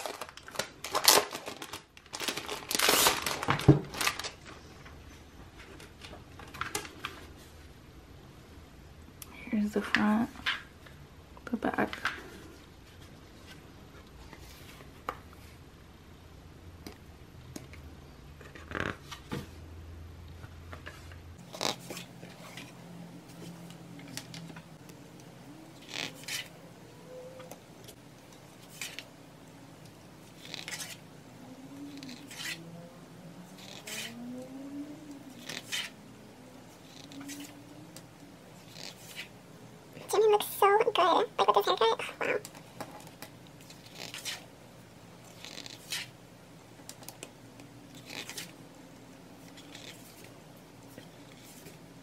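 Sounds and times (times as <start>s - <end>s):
book pages turning: 0.0s - 4.6s, 20.7s - 25.0s, 25.8s - 26.5s, 27.4s - 29.1s, 30.2s - 31.0s, 31.9s - 32.6s, 33.6s - 34.2s, 35.3s - 36.0s, 36.8s - 37.6s, 38.6s - 39.3s, 42.4s - 44.5s, 45.2s - 46.2s, 46.8s - 48.6s, 49.4s - 51.8s.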